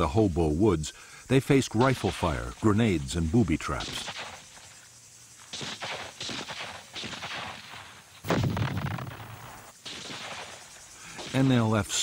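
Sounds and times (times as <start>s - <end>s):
gunshots with echoing tail: 5.5s - 10.6s.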